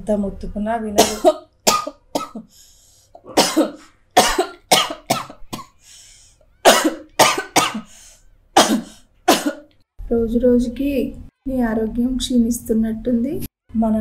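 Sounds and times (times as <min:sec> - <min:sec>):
woman coughing: 0:01.0 - 0:02.5, 0:03.2 - 0:05.8, 0:06.6 - 0:08.0, 0:08.6 - 0:09.7.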